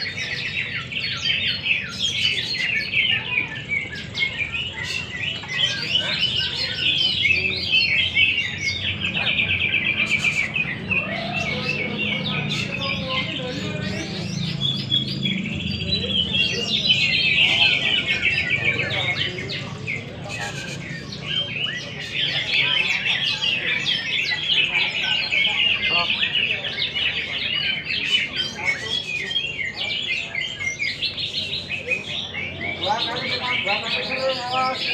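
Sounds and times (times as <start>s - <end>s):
caged birds singing: 0.0s - 34.9s.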